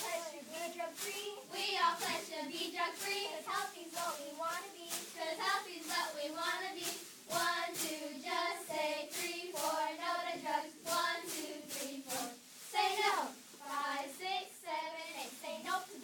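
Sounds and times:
children chanting a cheer: 0:05.0 - 0:16.0.

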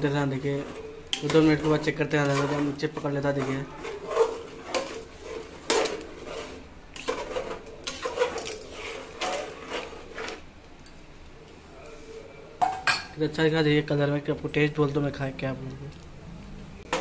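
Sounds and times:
metal spoon scraping a pot: 0:00.0 - 0:10.5
masala frying: 0:00.0 - 0:12.8, 0:13.7 - 0:17.0.

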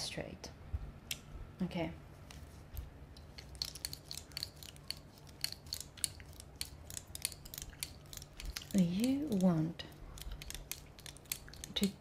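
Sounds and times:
gum chewing clicks and smacks: 0:03.3 - 0:12.0.

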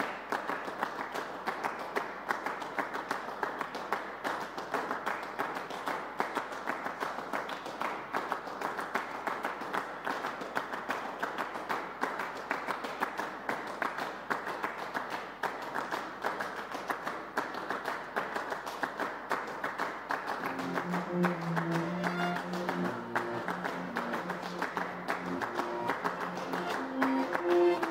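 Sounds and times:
audience applauding: 0:00.0 - 0:27.9
music with low sustained notes: 0:20.4 - 0:27.9.

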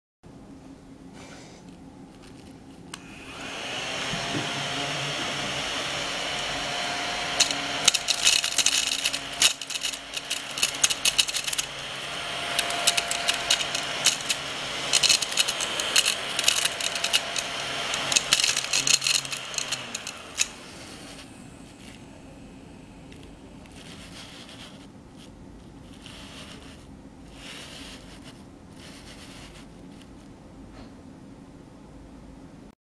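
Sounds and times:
small vacuum motor whirring: 0:02.4 - 0:24.9, 0:25.9 - 0:29.7
seed husks rattling: 0:07.0 - 0:21.3.

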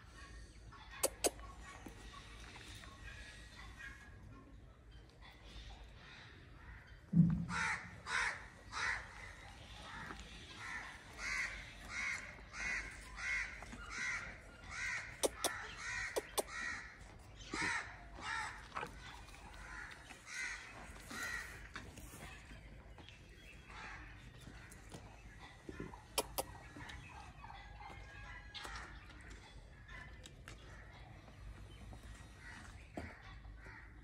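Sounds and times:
thump: 0:07.1 - 0:07.5
crow cawing: 0:07.5 - 0:09.0
sharp clicks: 0:15.2 - 0:16.5.

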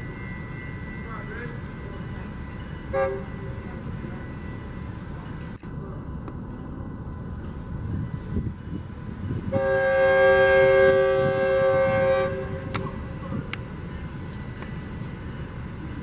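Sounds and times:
train rumbling: 0:00.0 - 0:16.0
train horn blast: 0:02.9 - 0:03.6, 0:09.5 - 0:13.0.

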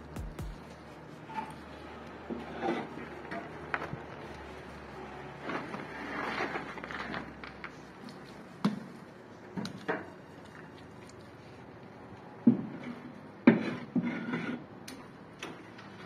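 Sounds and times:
scraping plaster on wall: 0:00.6 - 0:07.7, 0:12.6 - 0:14.8.

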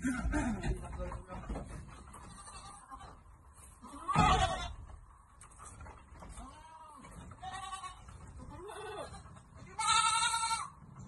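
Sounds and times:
goats bleating: 0:02.2 - 0:04.9, 0:06.3 - 0:10.8.

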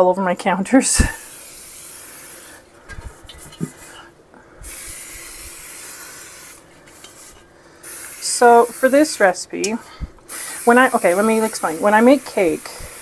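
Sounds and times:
aerosol spray hissing: 0:00.9 - 0:02.7, 0:04.6 - 0:09.4, 0:10.2 - 0:13.0.

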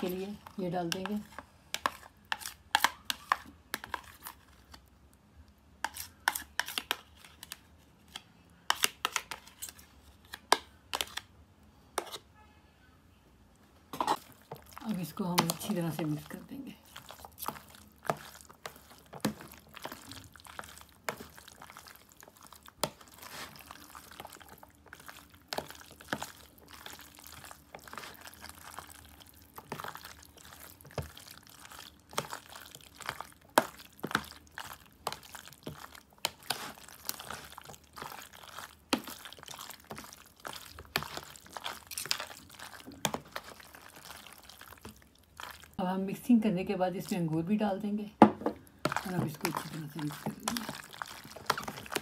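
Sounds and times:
wet squishing of pasta: 0:00.0 - 0:11.4, 0:13.6 - 0:46.2, 0:48.5 - 0:52.0.

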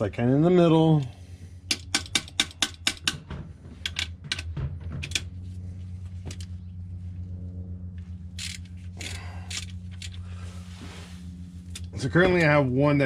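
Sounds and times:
steady low hum: 0:00.0 - 0:13.0
ratchet wrench clicking: 0:08.4 - 0:10.2.

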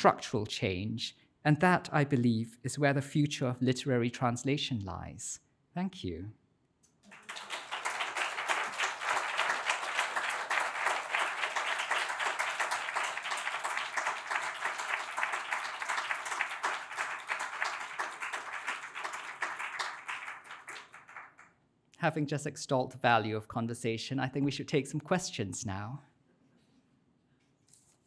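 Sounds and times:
audience applauding: 0:07.0 - 0:21.5.

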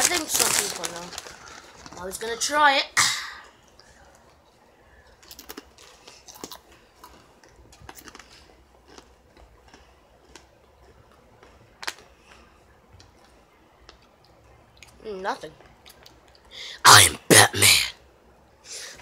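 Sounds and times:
potato chips crunching: 0:00.0 - 0:02.2, 0:05.1 - 0:12.4.

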